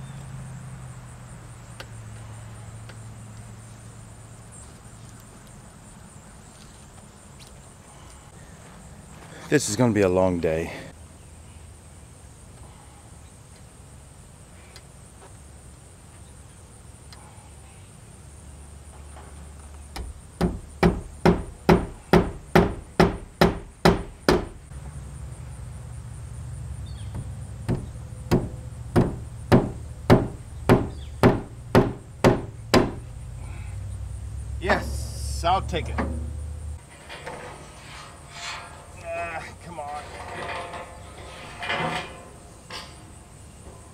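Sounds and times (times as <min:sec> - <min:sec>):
hammer blows: 0:20.0 - 0:24.6, 0:27.1 - 0:33.1, 0:34.6 - 0:43.8.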